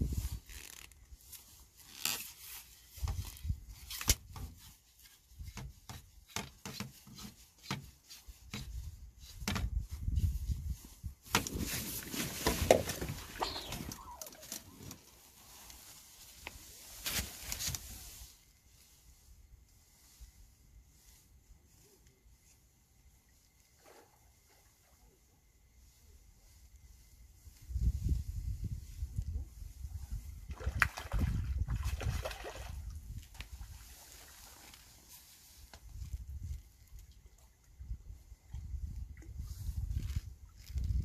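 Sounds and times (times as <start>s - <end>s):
handling rustling and scraping: 0.0s - 22.7s.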